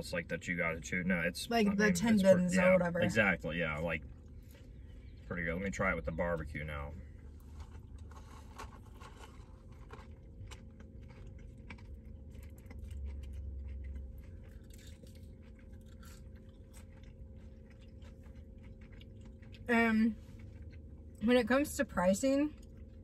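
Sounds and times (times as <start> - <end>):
low hum: 0.0 - 23.0
crunchy chewing: 7.1 - 21.2.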